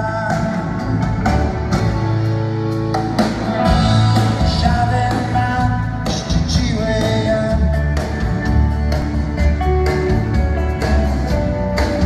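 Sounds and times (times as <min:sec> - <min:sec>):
acoustic guitar: 0:00.0 - 0:12.0
bass guitar: 0:00.0 - 0:12.0
drums with a steady beat: 0:00.0 - 0:12.0
electric guitar: 0:00.0 - 0:12.0
lead vocal singing: 0:03.8 - 0:08.0.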